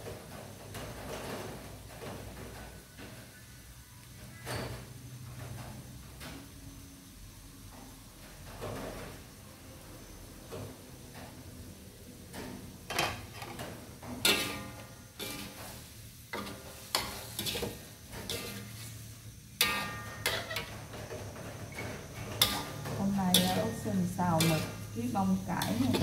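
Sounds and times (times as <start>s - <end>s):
faint sizzle: 0.0s - 26.0s
metal spatula scraping a wok: 14.2s - 26.0s.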